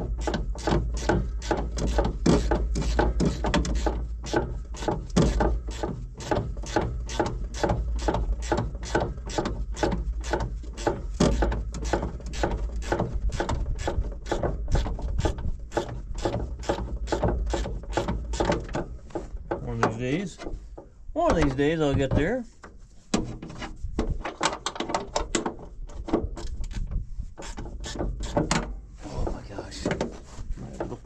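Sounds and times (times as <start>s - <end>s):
low steady rumble: 0.0s - 24.2s.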